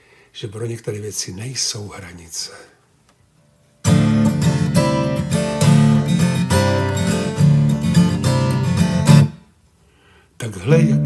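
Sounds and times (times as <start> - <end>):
acoustic guitar strumming chords: 3.9 - 9.4, 10.6 - 11.0.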